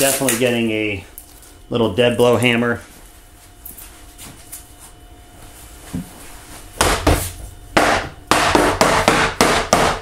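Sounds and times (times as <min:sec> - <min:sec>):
sharp knocks on wood: 0:07.8 - 0:10.0.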